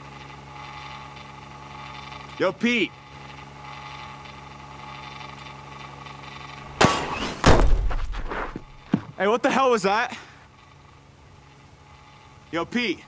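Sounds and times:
pitching machine humming: 0:01.7 - 0:09.4
machine firing ball crack: 0:06.7 - 0:08.9.

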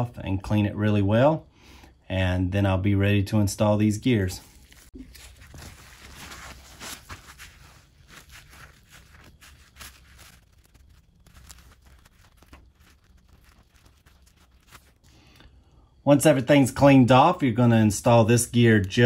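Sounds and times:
paper towel rustling and scratching: 0:04.2 - 0:15.1.

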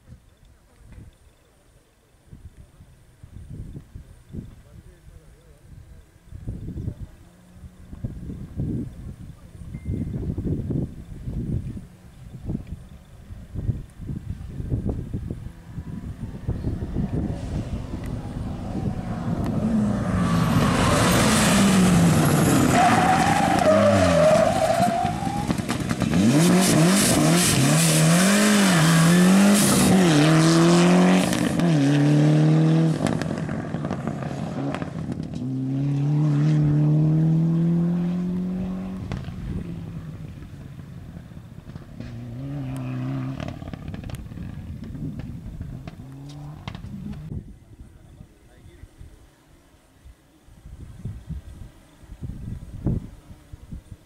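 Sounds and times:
rally car engine revving: 0:14.8 - 0:47.4.

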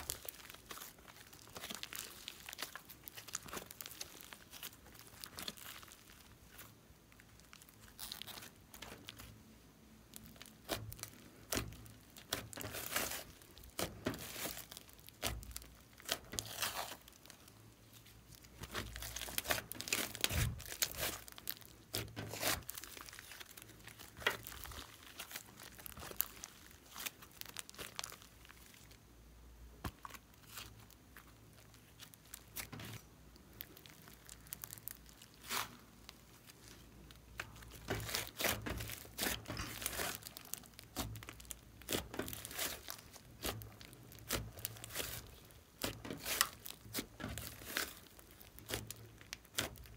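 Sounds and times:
sticky slime crackles and clicks: 0:00.0 - 0:09.4, 0:10.1 - 0:29.0, 0:29.8 - 0:49.9.

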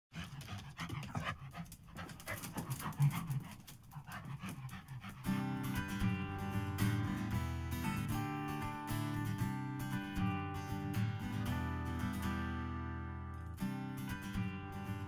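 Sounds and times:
dog panting: 0:00.1 - 0:06.2
acoustic guitar music: 0:05.2 - 0:15.0.

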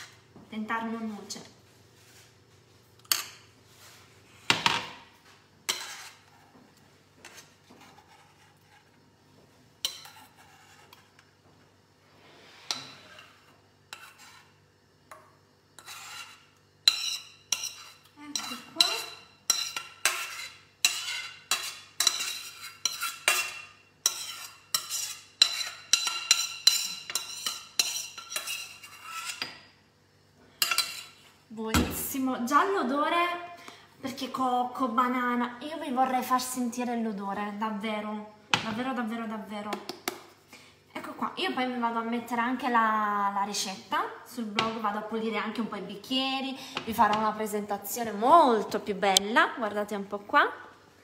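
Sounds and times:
metal spoon scraping a pan: 0:05.6 - 0:06.6, 0:07.2 - 0:09.0, 0:09.8 - 0:11.2, 0:12.4 - 0:14.6, 0:15.8 - 0:29.7, 0:30.6 - 0:31.3.

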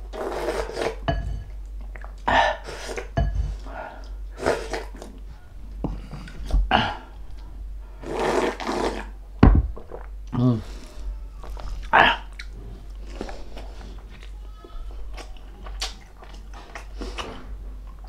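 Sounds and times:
person slurping soup: 0:00.1 - 0:01.0, 0:04.4 - 0:05.1, 0:08.0 - 0:09.2
sharp low thump: 0:09.4 - 0:09.8.

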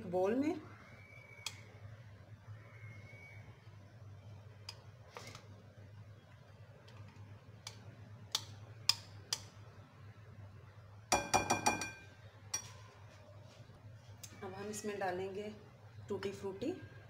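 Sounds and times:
ringing taps: 0:11.1 - 0:12.1.

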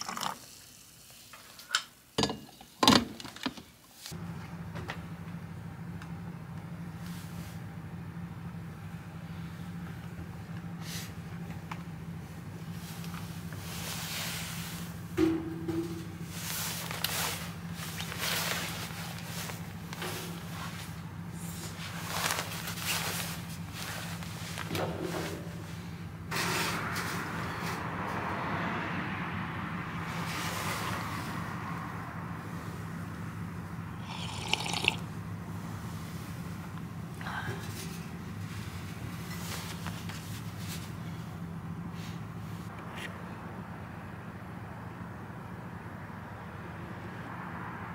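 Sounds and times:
low mechanical hum: 0:03.4 - 0:28.1, 0:31.0 - 0:47.4
slurping sip of coffee: 0:34.0 - 0:35.0.

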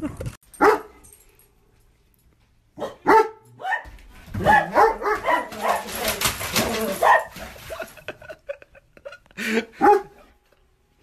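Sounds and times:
dog barking: 0:00.6 - 0:01.0, 0:02.8 - 0:06.1, 0:07.0 - 0:07.4, 0:09.8 - 0:10.3.

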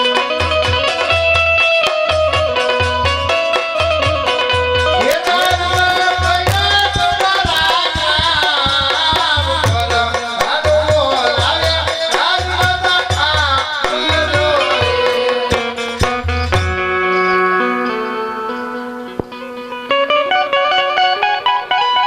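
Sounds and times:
drums and percussion beat: 0:00.0 - 0:17.3, 0:19.1 - 0:20.0
man singing folk melody: 0:04.9 - 0:16.0.

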